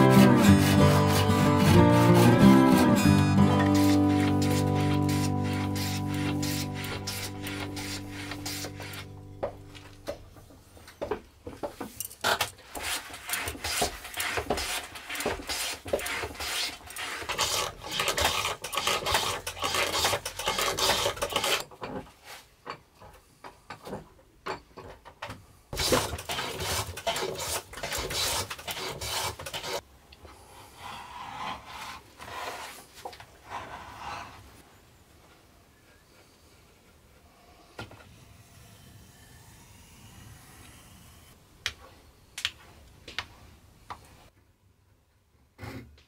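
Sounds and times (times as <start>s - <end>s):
hand plane scraping wood: 0.0s - 10.2s, 12.3s - 21.6s, 25.8s - 29.8s, 31.1s - 34.6s.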